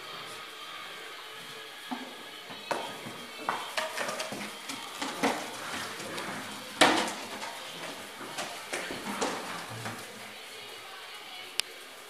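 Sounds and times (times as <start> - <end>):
puppies clattering toys: 1.9 - 11.0.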